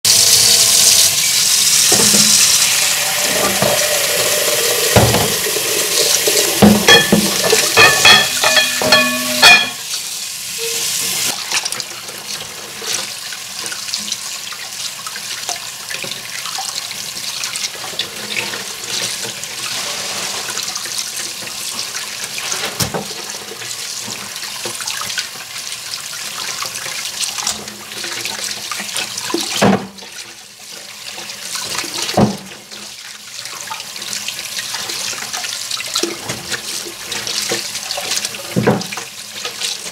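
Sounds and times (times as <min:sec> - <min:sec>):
meat rinsed and rubbed by hand: 0:00.1 - 0:39.9
tap running into steel sink: 0:01.9 - 0:09.8
sharp ringing clinks: 0:07.8 - 0:09.8.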